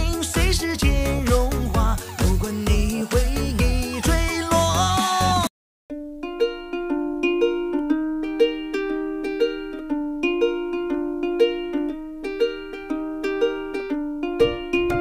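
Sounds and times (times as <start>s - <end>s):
dance-pop music: 0.0s - 5.5s
plucked-string tune: 5.9s - 15.0s.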